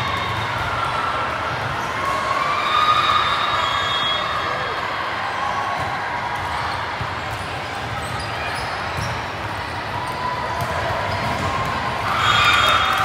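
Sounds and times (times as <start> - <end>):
spectators chattering: 0.0 - 13.0
volleyball bouncing and hit: 10.5 - 12.0.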